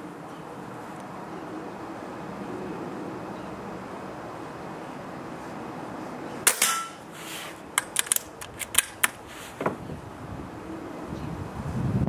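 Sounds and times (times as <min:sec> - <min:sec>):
air rifle shot: 0:06.5 - 0:07.0
rifle lever metallic clicks: 0:07.8 - 0:09.2.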